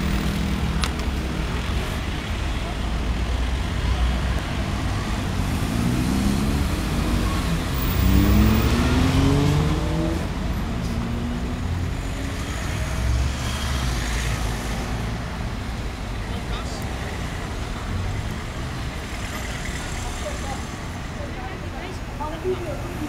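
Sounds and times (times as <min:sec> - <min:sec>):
city street traffic: 0:00.0 - 0:23.0
vehicle accelerating past: 0:04.8 - 0:14.5.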